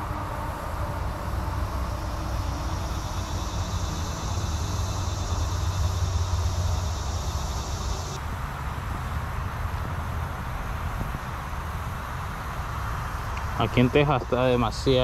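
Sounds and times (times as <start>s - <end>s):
high insect drone: 0.0s - 8.2s, 12.8s - 15.0s
steady low rumble: 0.0s - 8.2s.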